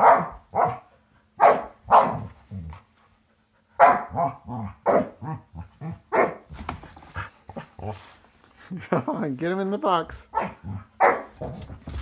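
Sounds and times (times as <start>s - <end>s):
dog barking: 0.0s - 2.3s, 3.8s - 6.5s, 10.3s - 11.4s.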